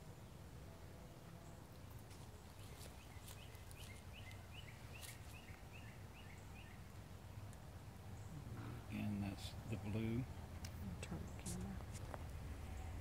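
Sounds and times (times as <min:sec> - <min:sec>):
bird chirping: 0:01.0 - 0:11.8.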